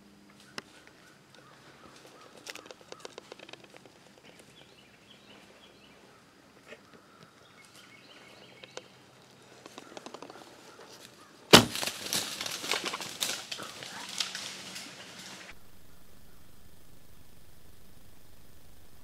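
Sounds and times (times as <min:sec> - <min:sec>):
rustles in dry leaves: 0:04.4 - 0:18.0.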